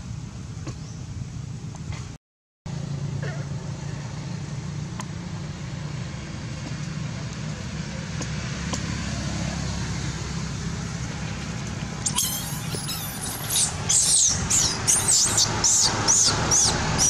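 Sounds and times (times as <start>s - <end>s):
low rumble and hiss: 0.0s - 2.2s.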